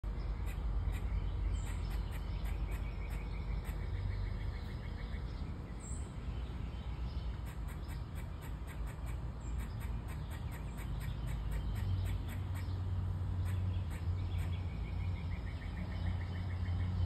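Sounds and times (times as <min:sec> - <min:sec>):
squirrel chattering: 0:00.4 - 0:04.0, 0:07.3 - 0:15.0.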